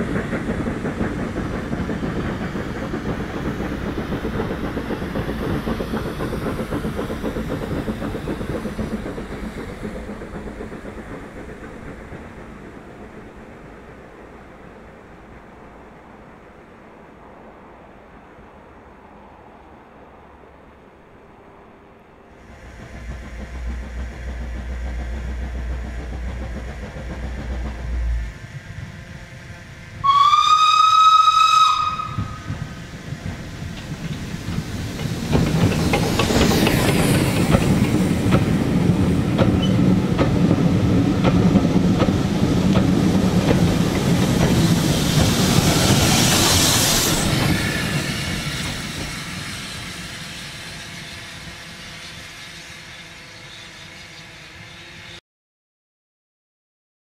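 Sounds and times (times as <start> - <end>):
steam locomotive chuffing: 0.0 - 16.2, 22.4 - 55.2
steam hiss: 0.0 - 16.3, 22.4 - 55.2
low rumble: 22.5 - 30.0
steam locomotive whistle: 30.0 - 32.5.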